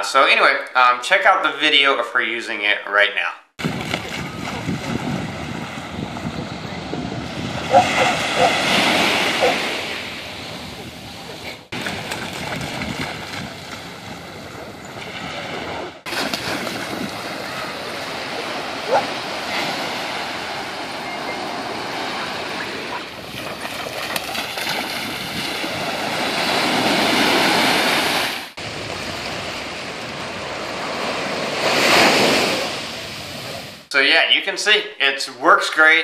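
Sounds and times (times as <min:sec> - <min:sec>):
small waves breaking on shore: 0:03.6 - 0:33.9
dog splashing through water: 0:11.8 - 0:13.9, 0:16.1 - 0:19.9, 0:23.2 - 0:26.8.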